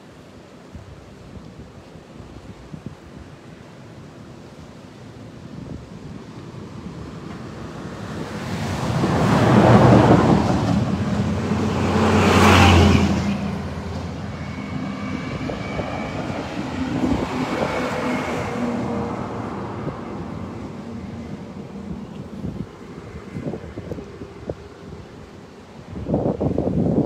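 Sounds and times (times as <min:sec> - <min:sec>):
rushing floodwater: 0:00.0 - 0:27.0
vehicles driving past: 0:06.6 - 0:25.7.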